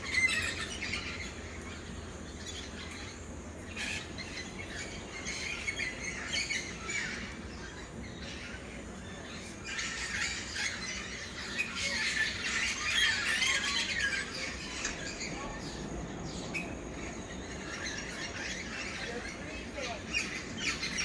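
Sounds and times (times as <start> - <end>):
birds chirping and squawking: 0.0 - 21.0
steady low rush: 13.6 - 21.0.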